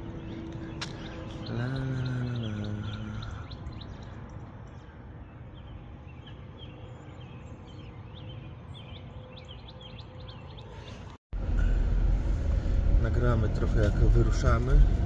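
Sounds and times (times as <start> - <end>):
small songbirds chirping: 0.0 - 11.2
low background rumble: 11.4 - 15.0.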